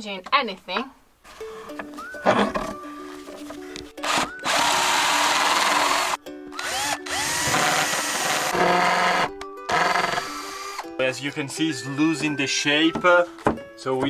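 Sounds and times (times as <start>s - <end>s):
quiet plucked background music: 0.0s - 14.0s
cordless drill boring into wood: 4.0s - 10.9s.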